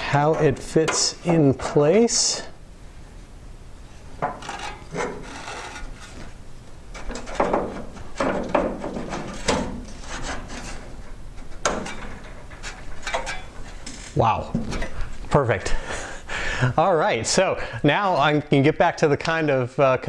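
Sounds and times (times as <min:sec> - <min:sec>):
steel bar scraping on metal frame: 0:04.3 - 0:06.2, 0:08.9 - 0:11.0.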